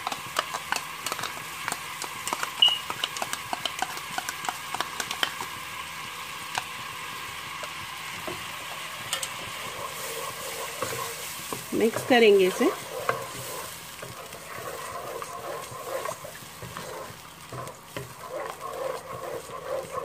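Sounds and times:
masala sizzling in a pot: 0:00.0 - 0:20.0
wooden spatula stirring: 0:08.2 - 0:20.0.

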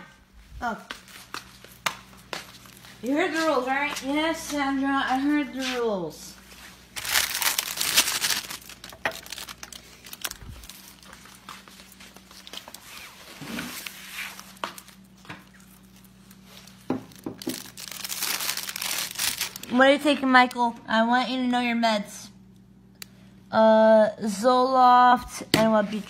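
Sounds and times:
paper plates crinkling: 0:06.6 - 0:19.8.

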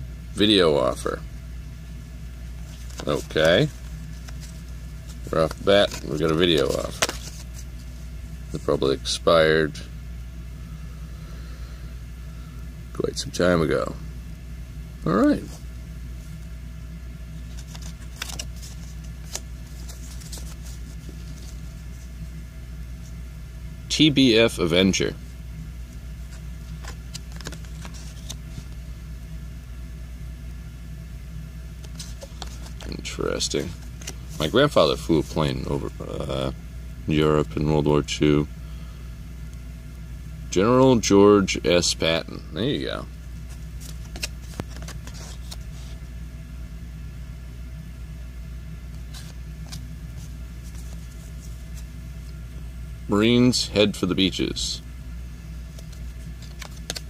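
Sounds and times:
low steady hum: 0:00.0 - 0:57.0
cards shuffling clicks and rustles: 0:02.6 - 0:08.7, 0:17.3 - 0:22.4, 0:25.9 - 0:28.8, 0:31.8 - 0:36.5, 0:42.6 - 0:46.0, 0:48.9 - 0:52.5, 0:55.6 - 0:57.0.

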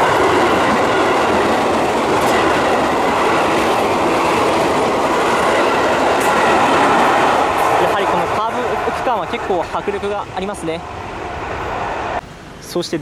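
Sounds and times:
wheels clicking over track: 0:00.0 - 0:07.9
train wheels rushing on rail: 0:00.0 - 0:13.0.

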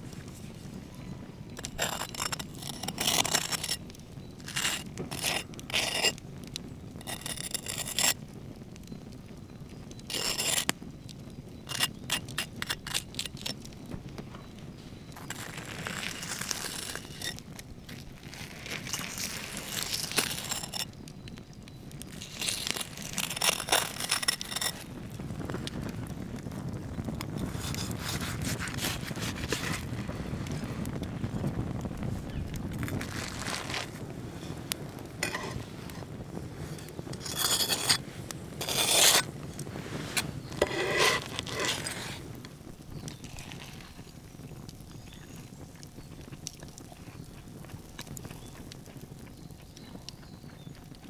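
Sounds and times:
wood fire crackling: 0:00.0 - 0:51.0
knife sawing into crunchy crust: 0:22.4 - 0:24.8, 0:27.5 - 0:29.8, 0:37.2 - 0:38.0, 0:38.6 - 0:39.3, 0:40.2 - 0:42.2.

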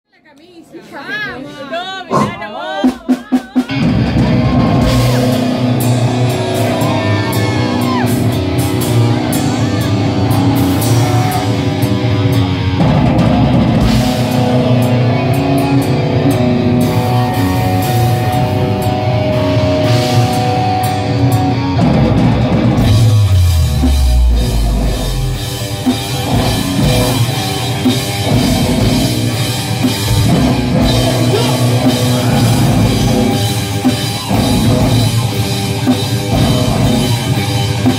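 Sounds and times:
metal band playing: 0:02.1 - 0:37.9.

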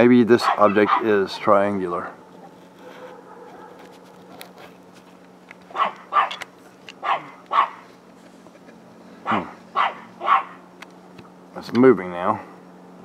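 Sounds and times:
low steady hum: 0:00.0 - 0:13.0
dog barking: 0:00.4 - 0:01.3, 0:02.8 - 0:03.9, 0:05.7 - 0:06.4, 0:07.0 - 0:07.8, 0:09.2 - 0:10.6.

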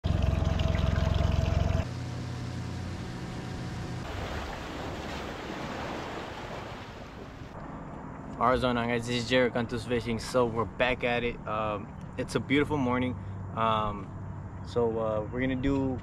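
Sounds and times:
engine running hard: 0:00.0 - 0:04.1
steady engine hum: 0:00.0 - 0:05.0, 0:07.3 - 0:16.0.

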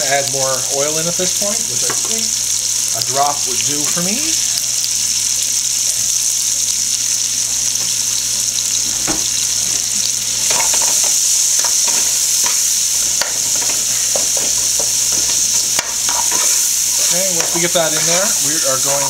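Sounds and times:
onions sizzling in hot oil: 0:00.0 - 0:19.0
utensil scraping a pot: 0:10.3 - 0:19.0.

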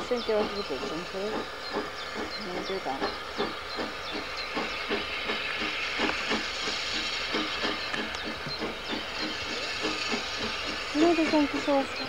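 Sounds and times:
steam hissing: 0:00.0 - 0:12.0
steam locomotive chuffing: 0:00.0 - 0:12.0.

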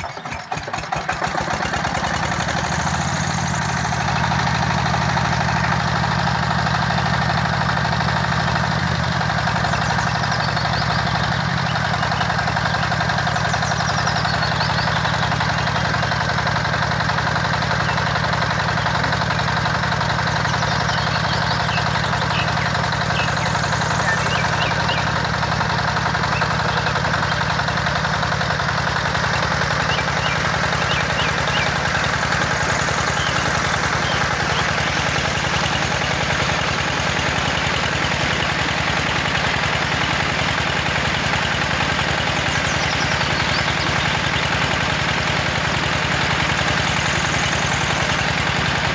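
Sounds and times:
small engine running: 0:00.0 - 0:48.9.

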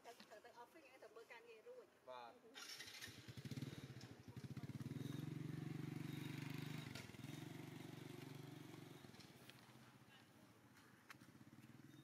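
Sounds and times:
small engine running: 0:02.6 - 0:09.3.

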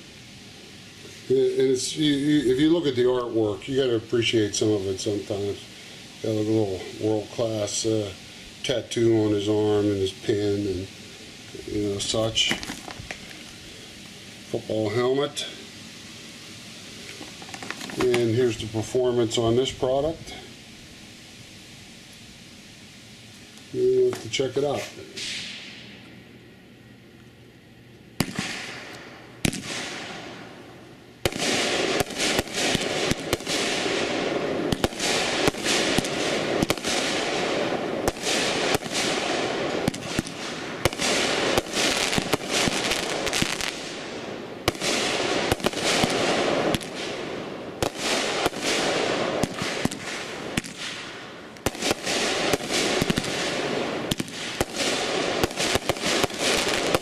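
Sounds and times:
rapid fireworks barrage: 0:00.0 - 0:22.9, 0:23.8 - 0:26.0, 0:28.2 - 0:57.0
firework bangs: 0:11.6 - 0:14.0, 0:16.2 - 0:20.5, 0:23.8 - 0:26.0, 0:28.2 - 0:57.0.

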